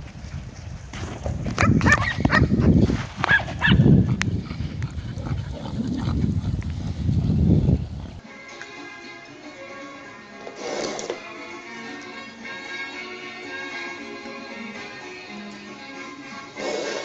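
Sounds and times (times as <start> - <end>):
dogs barking: 1.6 - 2.5, 3.3 - 4.2.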